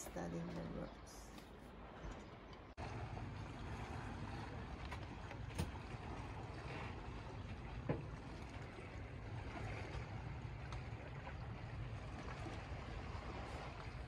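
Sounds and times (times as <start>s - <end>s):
boat engine low rumble: 0.0s - 14.0s
water swishing: 0.0s - 14.0s.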